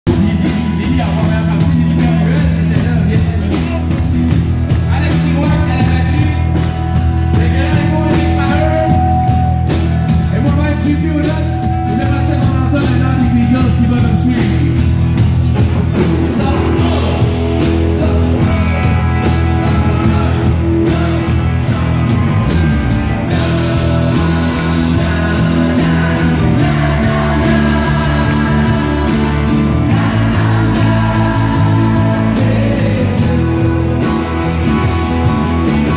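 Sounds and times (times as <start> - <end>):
country band playing: 0.0 - 35.9
people singing into microphones: 23.2 - 34.6.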